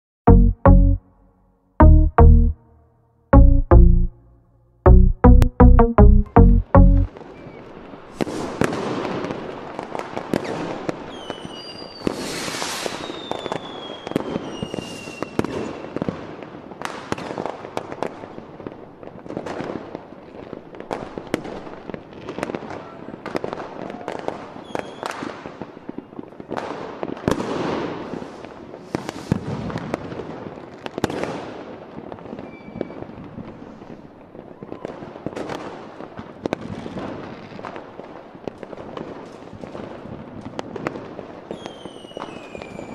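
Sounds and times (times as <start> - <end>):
fireworks banging and crackling: 7.2 - 42.9
falling firework whistles: 10.3 - 16.2, 24.6 - 25.3, 27.8 - 29.9, 32.3 - 33.7, 41.5 - 42.9.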